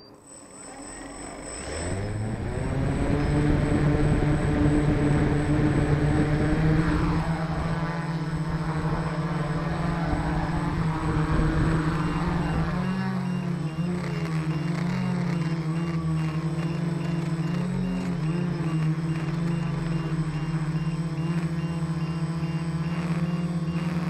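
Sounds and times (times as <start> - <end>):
drone motors spinning: 0.0 - 24.0.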